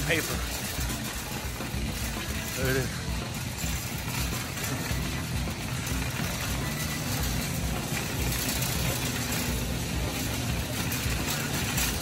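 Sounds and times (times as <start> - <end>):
shopping carts rolling on concrete: 0.0 - 12.0
wheels and wire baskets rattling: 0.0 - 12.0.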